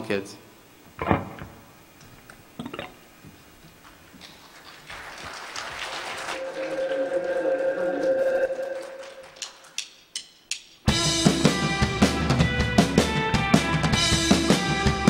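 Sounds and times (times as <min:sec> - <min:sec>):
two-pitch train whine: 0:06.4 - 0:09.6.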